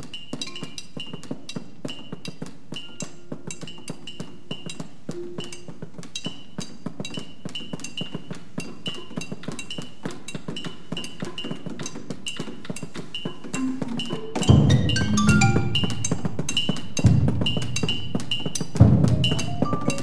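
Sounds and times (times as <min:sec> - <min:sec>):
fast clicking percussion: 0:00.0 - 0:20.0
rising mallet notes: 0:13.6 - 0:18.2, 0:18.8 - 0:20.0.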